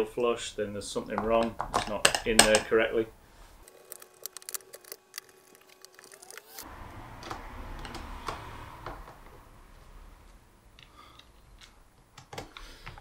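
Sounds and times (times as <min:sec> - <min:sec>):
screwdriver working screws: 0:03.6 - 0:06.6.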